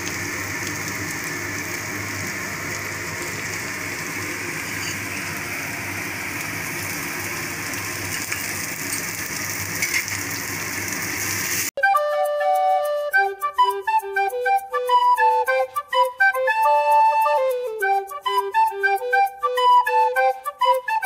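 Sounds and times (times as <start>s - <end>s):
potato frying in oil: 0.0s - 11.7s.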